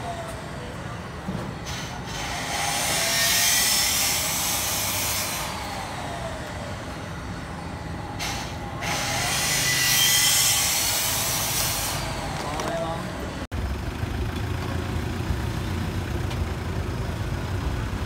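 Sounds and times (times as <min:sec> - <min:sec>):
low traffic rumble: 0:00.0 - 0:18.0
vehicles passing: 0:00.0 - 0:18.0.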